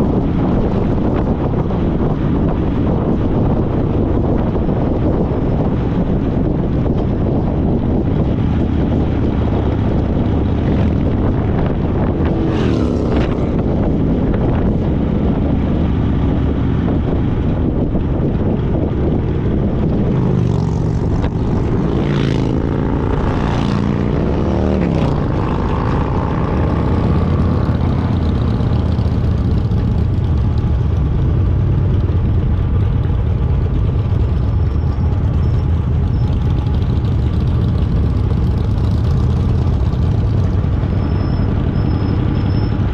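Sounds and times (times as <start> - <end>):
wind rushing: 0.0 - 31.2
motorcycle engine running: 0.0 - 42.9.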